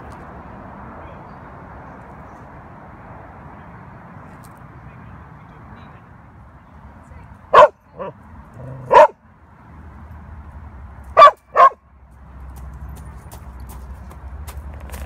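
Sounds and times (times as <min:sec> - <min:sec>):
dog barking: 0:07.5 - 0:09.2, 0:11.2 - 0:11.8.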